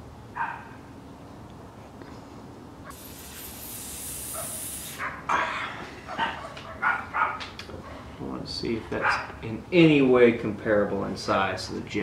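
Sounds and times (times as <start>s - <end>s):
hiss: 2.9s - 5.2s.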